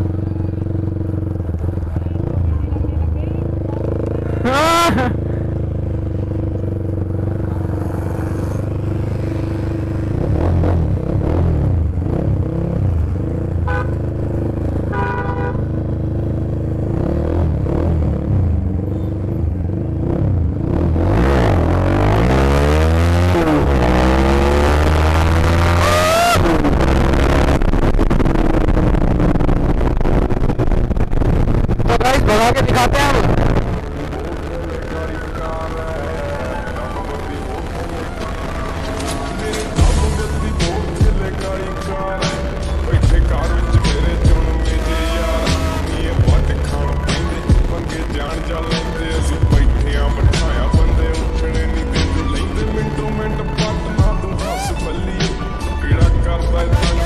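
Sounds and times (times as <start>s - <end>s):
motorcycle engine revving: 0.0s - 57.0s
vehicle horn tooting: 13.6s - 14.1s, 14.9s - 15.8s, 44.8s - 46.1s.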